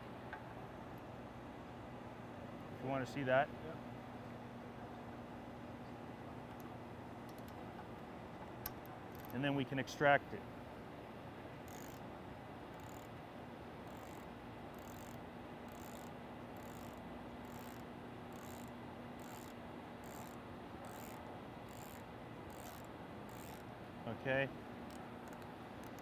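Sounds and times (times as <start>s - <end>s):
socket ratchet clicking: 7.3s - 7.6s, 8.6s - 9.4s, 11.7s - 12.0s, 12.7s - 13.1s, 13.9s - 23.6s, 24.9s - 26.0s.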